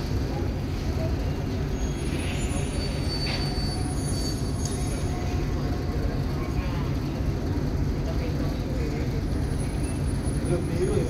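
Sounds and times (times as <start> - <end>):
ship engines deep rumble: 0.0 - 11.0
thin high squealing tones: 1.7 - 5.4.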